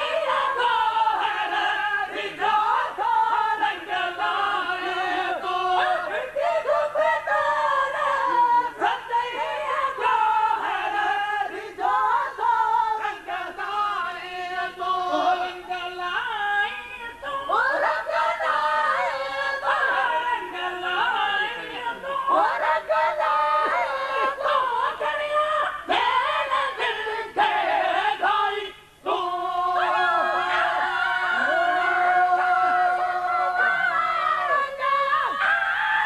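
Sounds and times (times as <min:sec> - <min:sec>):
men singing devotional chant: 0:00.0 - 0:36.0.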